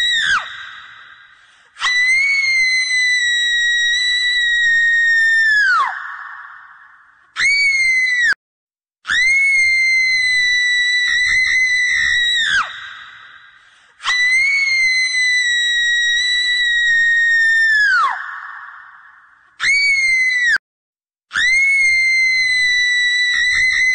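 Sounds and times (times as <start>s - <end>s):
high-pitched human screams: 1.8s - 6.6s, 9.1s - 12.7s, 14.0s - 19.0s, 19.6s - 20.6s, 21.3s - 23.9s.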